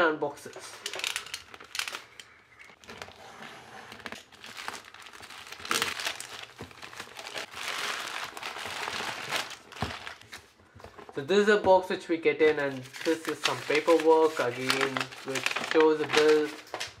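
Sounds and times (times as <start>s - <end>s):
plastic bag tearing and crinkling: 0.8s - 3.2s, 3.9s - 10.3s, 12.7s - 16.9s.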